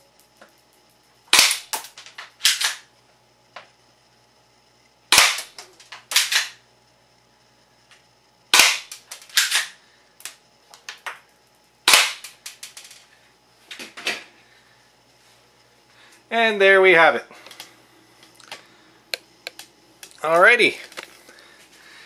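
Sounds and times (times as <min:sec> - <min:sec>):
airsoft gun shots: 0:01.3 - 0:01.8, 0:05.1 - 0:05.5, 0:08.5 - 0:09.7, 0:11.9 - 0:12.4.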